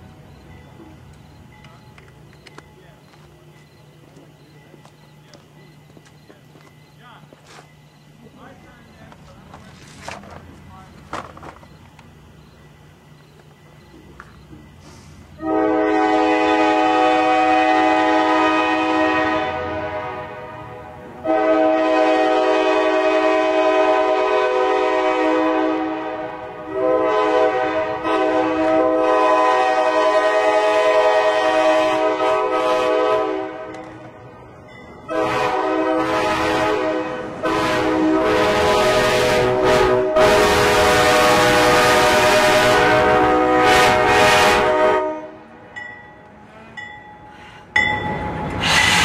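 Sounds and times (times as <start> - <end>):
locomotive air horn blasts: 15.3 - 33.8, 35.1 - 45.6.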